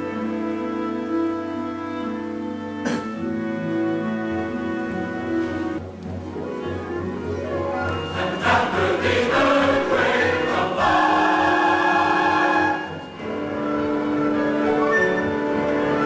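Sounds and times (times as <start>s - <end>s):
choir singing with orchestra: 7.5s - 16.0s.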